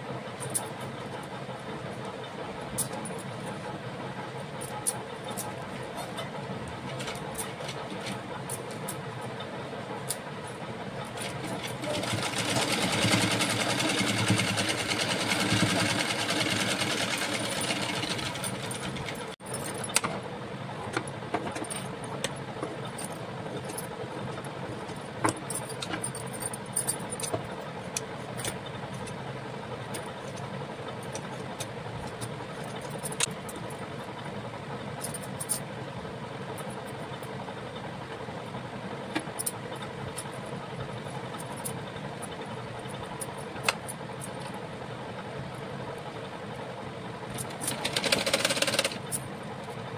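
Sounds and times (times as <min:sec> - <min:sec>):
sewing machine stitching: 0:11.2 - 0:19.4, 0:47.4 - 0:49.0.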